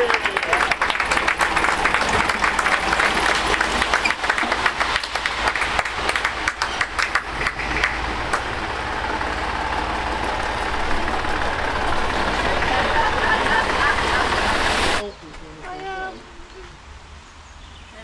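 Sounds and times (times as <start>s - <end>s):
people clapping: 0.0s - 8.7s
tractor diesel engine running: 0.0s - 15.1s.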